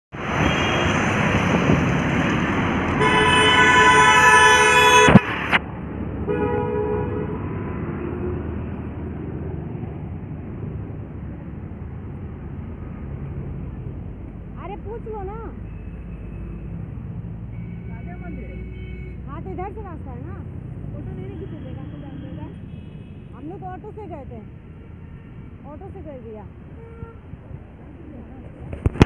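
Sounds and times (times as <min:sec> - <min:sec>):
road traffic noise: 0:00.1 - 0:29.0
vehicle horn honking: 0:00.4 - 0:01.0, 0:03.0 - 0:05.3, 0:06.3 - 0:07.4, 0:17.5 - 0:19.3, 0:24.7 - 0:25.6, 0:26.8 - 0:27.2.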